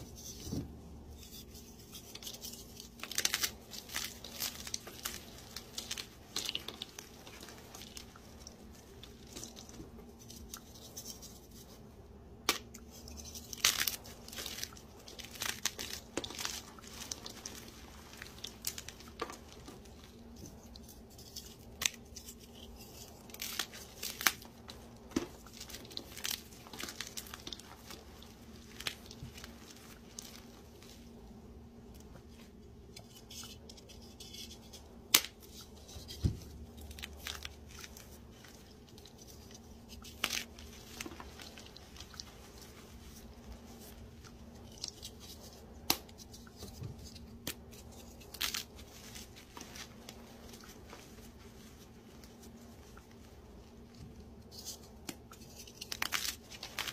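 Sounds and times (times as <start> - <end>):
hands crushing crunchy blocks: 1.9 - 11.4, 12.4 - 31.1, 35.0 - 51.4, 54.6 - 56.9
sharp snaps of breaking pieces: 12.4 - 12.8, 35.0 - 35.5.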